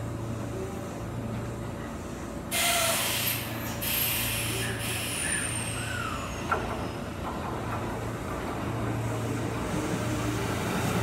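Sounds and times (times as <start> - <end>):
loud hiss of compressed air: 2.5 - 6.0.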